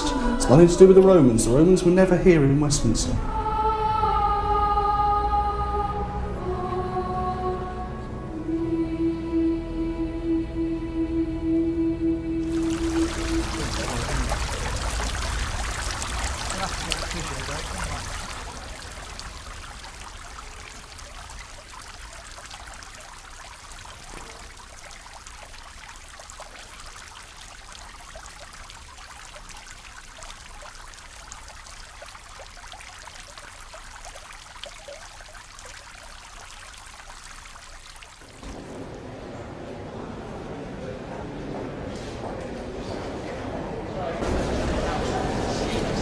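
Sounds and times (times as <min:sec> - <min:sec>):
running water trickling: 0:00.0 - 0:03.2, 0:12.4 - 0:39.0.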